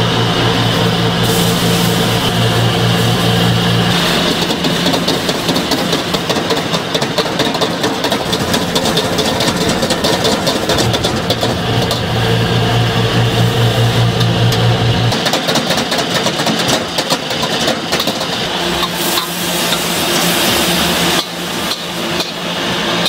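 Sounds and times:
steady low hum: 0.0s - 6.3s, 8.2s - 15.1s
gas burner roar: 0.0s - 23.0s
noodles sizzling in a wok: 1.0s - 7.0s, 18.4s - 23.0s.

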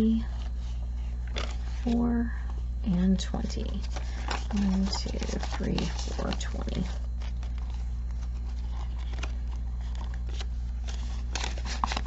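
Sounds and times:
low hum: 0.0s - 12.0s
paper banknotes rustling: 3.4s - 12.0s.

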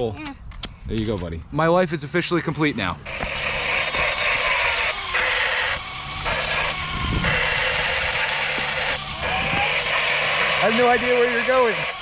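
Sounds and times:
electric motor and tyres whirring: 3.0s - 12.0s.

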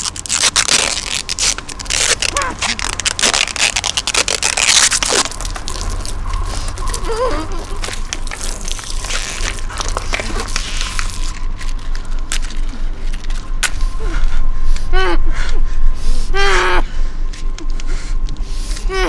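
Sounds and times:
plastic film crinkling: 0.0s - 13.8s.

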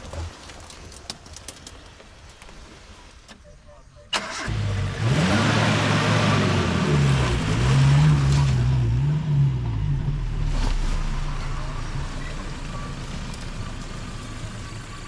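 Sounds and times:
engine revving hard under load: 4.2s - 10.7s.

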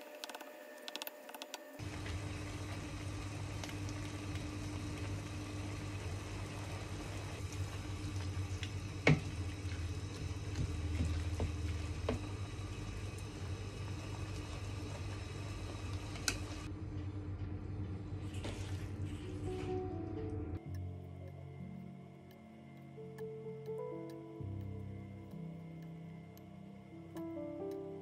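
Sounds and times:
steady low hum: 1.6s - 28.0s
filling sizzling in a frying pan: 1.8s - 16.7s.

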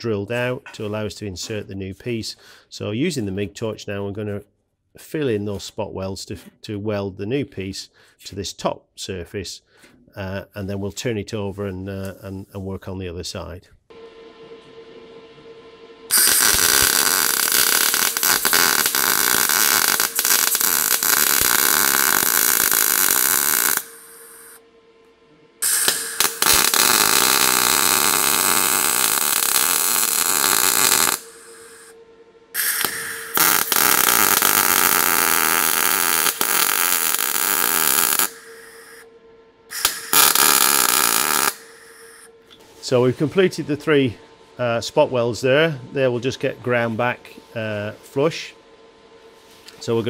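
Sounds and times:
welding arc crackling: 16.1s - 24.6s, 25.6s - 31.9s, 32.6s - 39.0s, 39.7s - 42.3s.

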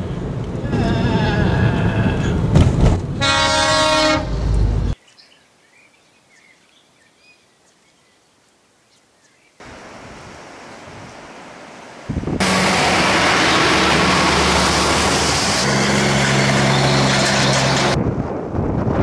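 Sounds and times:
trucks passing on road: 0.0s - 5.0s, 11.3s - 18.9s
vehicle horn: 3.2s - 4.4s.

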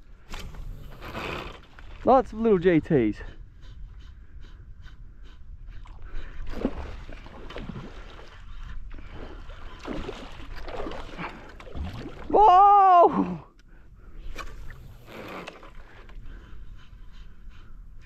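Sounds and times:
water sloshing from wading: 0.0s - 2.4s, 5.8s - 12.4s.

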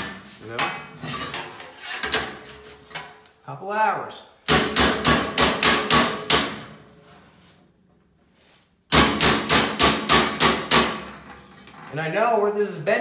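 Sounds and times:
hammer striking sheet metal: 4.5s - 6.8s, 8.9s - 11.3s.

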